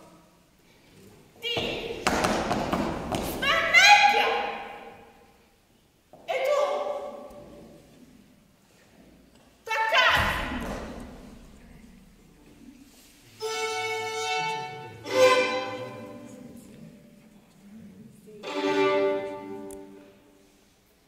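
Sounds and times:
bowed violin long notes: 0:13.4 - 0:16.2.

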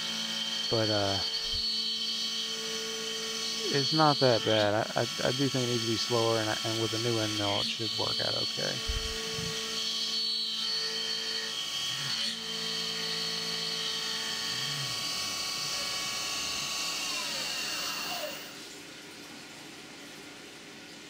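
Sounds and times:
milling machine spindle whine: 0:00.0 - 0:18.8
hiss of cutting and coolant: 0:02.5 - 0:09.6.

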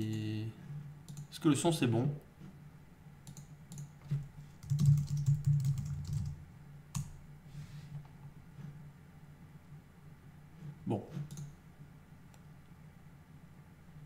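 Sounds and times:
steady low hum: 0:00.0 - 0:14.0
typing on computer keyboard: 0:04.6 - 0:07.1.

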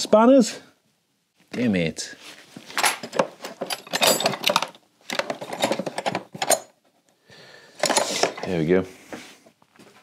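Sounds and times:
metal spanners clattering: 0:02.8 - 0:06.8.

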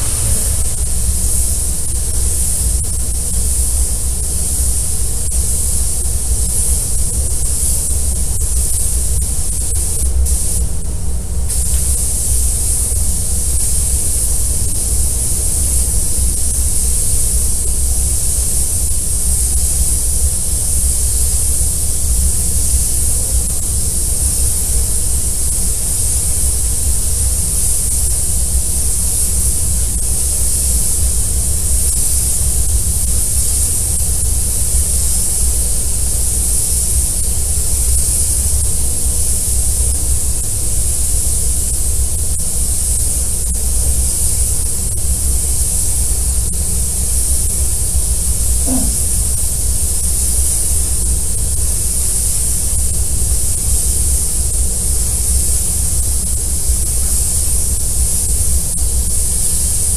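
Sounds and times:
steady low rumble: 0:00.0 - 0:02.6
spray gun hissing: 0:00.0 - 0:03.8, 0:08.5 - 0:10.7, 0:11.5 - 0:28.0, 0:45.4 - 0:51.1.

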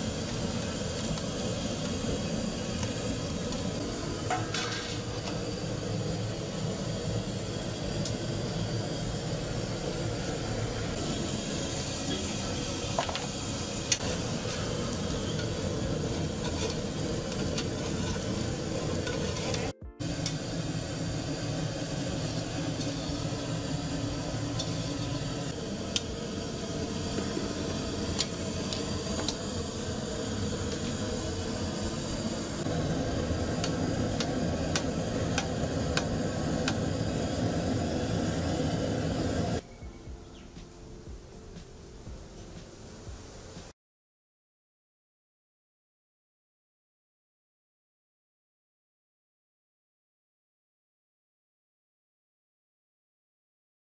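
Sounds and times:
oil sizzling: 0:00.0 - 0:39.6.

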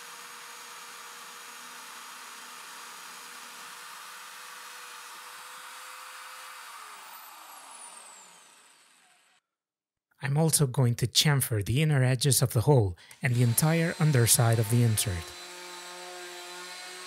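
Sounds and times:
drill press boring: 0:00.0 - 0:09.4, 0:13.1 - 0:17.0
motor winding down: 0:00.0 - 0:09.4, 0:13.1 - 0:17.0.

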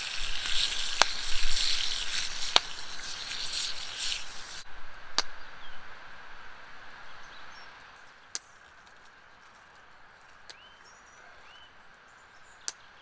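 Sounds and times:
food sizzling in a skillet: 0:00.0 - 0:04.7.

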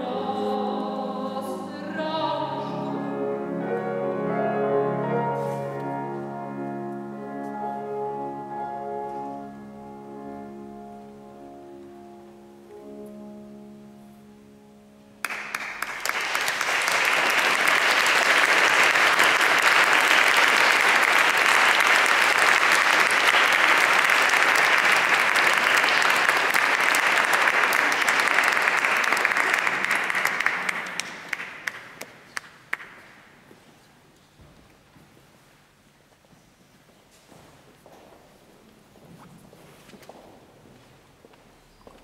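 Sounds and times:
piano chord: 0:00.0 - 0:16.0
audience applause: 0:15.2 - 0:33.1.

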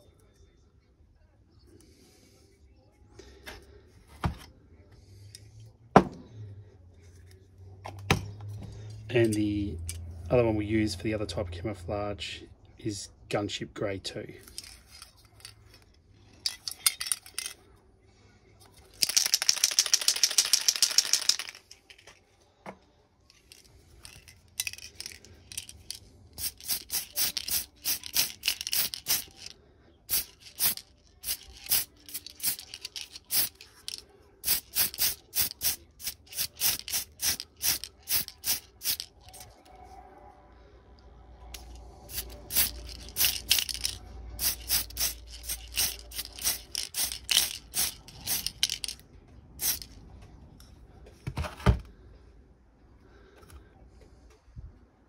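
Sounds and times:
aerosol spray can hissing: 0:26.4 - 0:29.5, 0:30.1 - 0:33.6, 0:34.4 - 0:39.0, 0:42.1 - 0:48.9, 0:49.6 - 0:49.9
short rapid spray bursts: 0:26.4 - 0:29.5, 0:30.1 - 0:33.6, 0:34.4 - 0:39.0, 0:42.1 - 0:48.9, 0:49.6 - 0:49.9.

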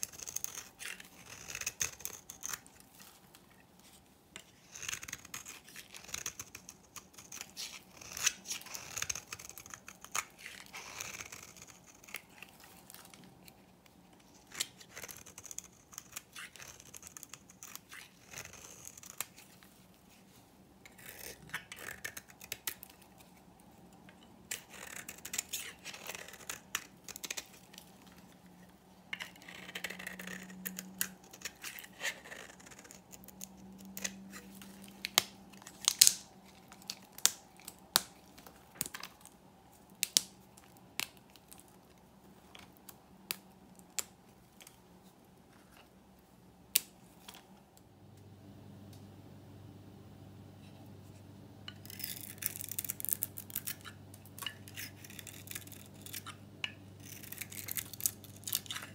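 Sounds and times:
knife scraping bar of soap: 0:00.0 - 0:02.7, 0:04.4 - 0:12.8, 0:20.9 - 0:23.0, 0:29.2 - 0:35.0, 0:57.0 - 0:58.9.

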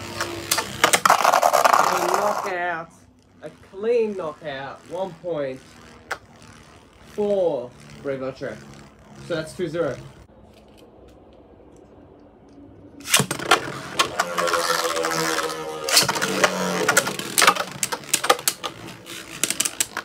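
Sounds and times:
spinning tops launched and whirring: 0:00.0 - 0:20.0
spinning tops clacking: 0:13.0 - 0:20.0.

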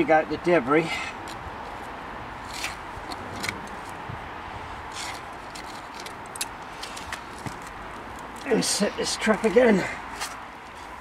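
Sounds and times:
trowel scraping soil: 0:04.9 - 0:05.9.

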